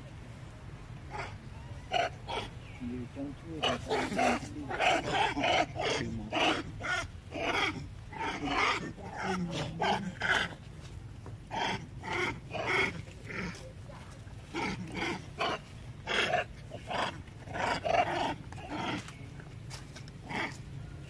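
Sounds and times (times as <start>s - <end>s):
monkeys calling: 1.1s - 10.6s, 11.5s - 13.9s.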